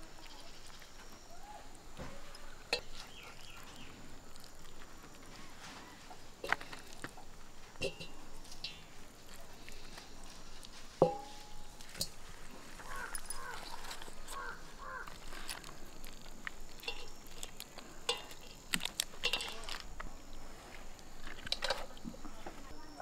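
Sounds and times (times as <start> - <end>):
leaves rustling: 0.0 - 23.0
metallic clink: 7.8 - 9.0, 16.6 - 19.8.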